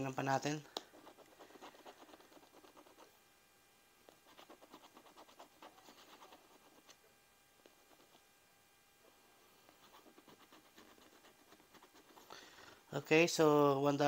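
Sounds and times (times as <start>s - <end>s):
lottery ticket being scratched: 0.8s - 3.1s, 4.2s - 7.0s, 9.8s - 12.4s.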